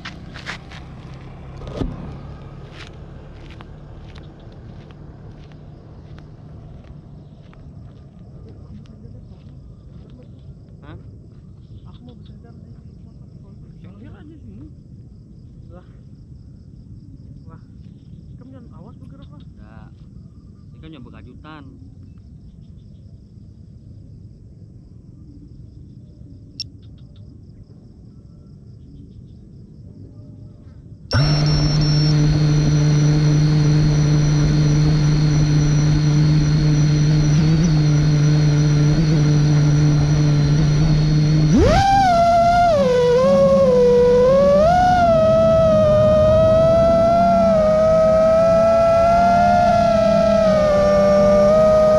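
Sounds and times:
drone motors whining: 0:00.0 - 0:08.0, 0:31.1 - 0:51.9.

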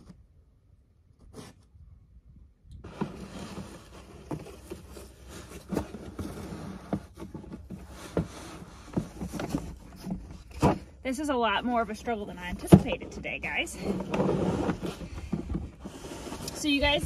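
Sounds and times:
cardboard rustling and scraping: 0:01.2 - 0:01.8, 0:02.8 - 0:17.0.

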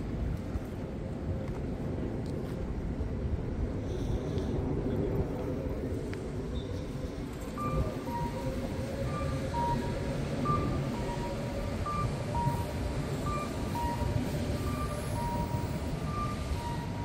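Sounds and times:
street traffic rumble: 0:00.0 - 0:17.0
two-note crossing signal beeps: 0:07.6 - 0:08.4.

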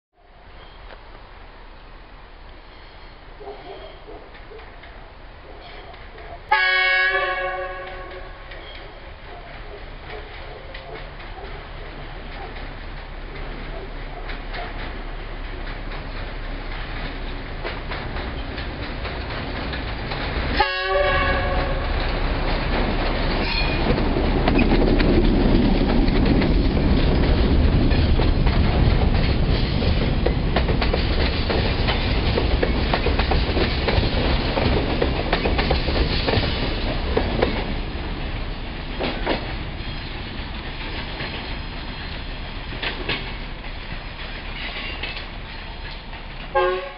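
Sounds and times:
locomotive rumble: 0:00.3 - 0:46.9
train horn blast: 0:06.5 - 0:08.5, 0:20.6 - 0:22.0, 0:46.5 - 0:46.9
wagon wheels clattering on rails: 0:07.8 - 0:46.9.

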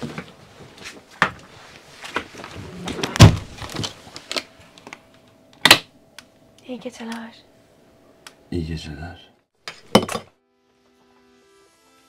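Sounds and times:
door pulled shut with a thud: 0:03.2 - 0:03.5.

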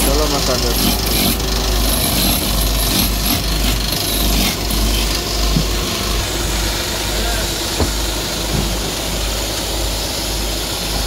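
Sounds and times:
chisel scraping spinning wood: 0:00.0 - 0:06.5
wood lathe humming: 0:00.0 - 0:11.0.

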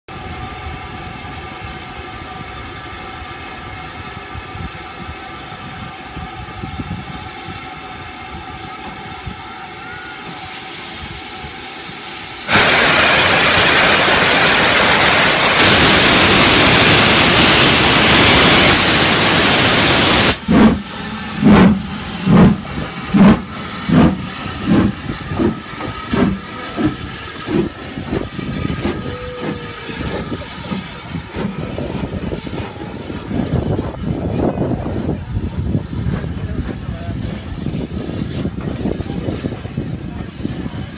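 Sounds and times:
loud hiss of steam: 0:00.1 - 0:40.9
steam locomotive hum: 0:00.1 - 0:40.9
locomotive exhaust beats: 0:11.9 - 0:40.9.

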